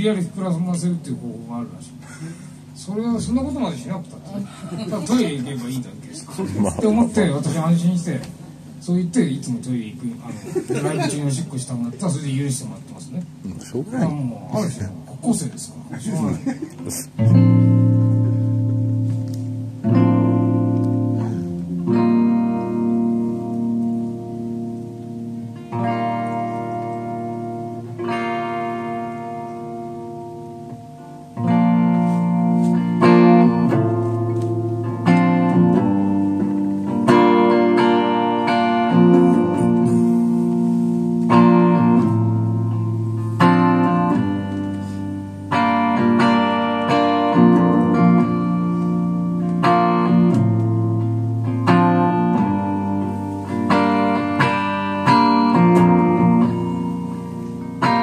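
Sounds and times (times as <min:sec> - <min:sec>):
electric guitar strumming chords: 0:16.7 - 0:58.0.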